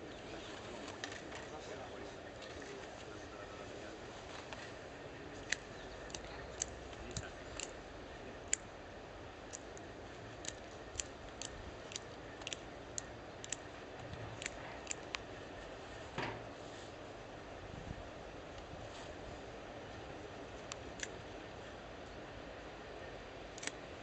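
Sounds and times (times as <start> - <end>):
pruning shears snipping: 5.3 - 7.8, 9.4 - 15.3, 23.5 - 23.8.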